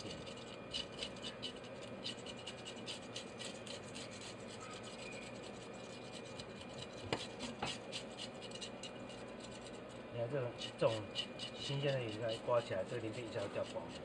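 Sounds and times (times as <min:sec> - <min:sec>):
metal blade scraping fish scales: 0:00.0 - 0:14.0.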